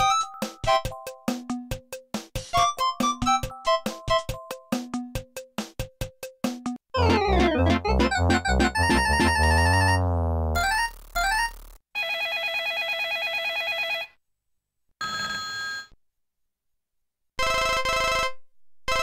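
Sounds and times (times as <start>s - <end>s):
warbling trill ringtone: 7.0s - 10.4s
rising electronic beeps: 7.0s - 10.7s.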